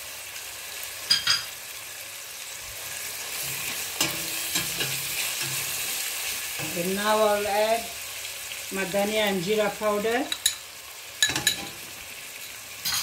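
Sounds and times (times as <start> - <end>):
food sizzling in oil: 0.0 - 13.0
ladle clinking against pot: 11.2 - 11.7.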